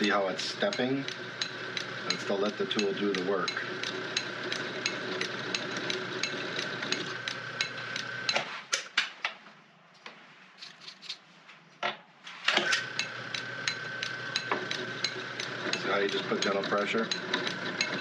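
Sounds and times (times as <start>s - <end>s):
lathe drilling whine and clicking: 0.0s - 8.4s, 12.5s - 18.0s.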